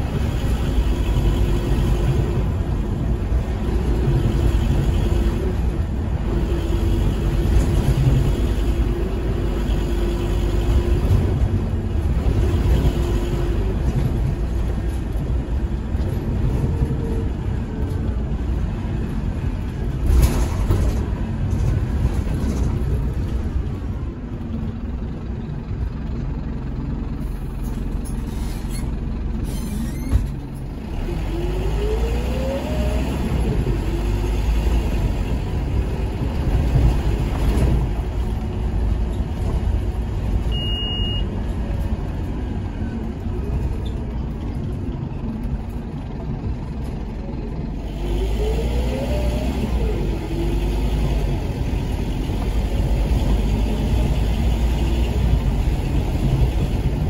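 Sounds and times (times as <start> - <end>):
diesel bus engine rumbling: 0.0 - 57.0
high beep: 40.5 - 41.3.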